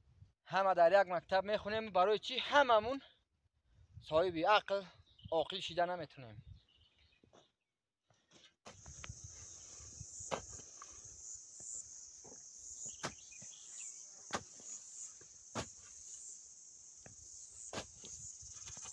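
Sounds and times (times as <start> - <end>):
insects chirring: 8.7 - 18.9
hoe chopping into soil: 10.2 - 10.9, 12.2 - 16.1, 17.0 - 18.9.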